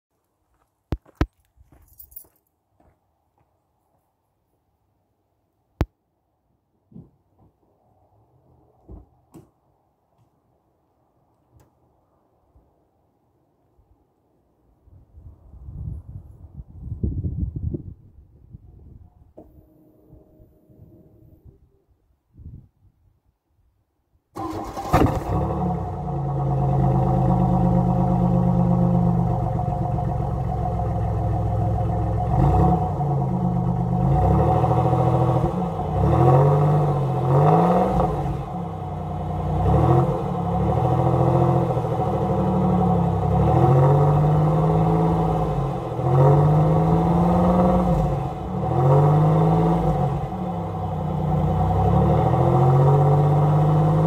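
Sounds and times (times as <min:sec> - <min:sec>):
car engine idling and revving: 0:24.4 - 0:54.0.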